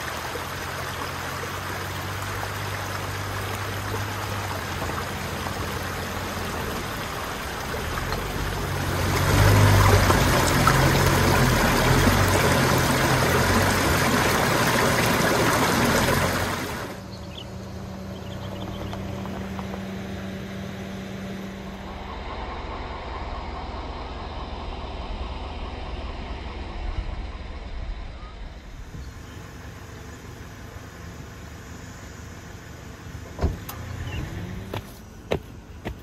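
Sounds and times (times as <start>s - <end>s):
car engine and road rumble: 0.0s - 36.0s
steady hum: 11.3s - 33.3s.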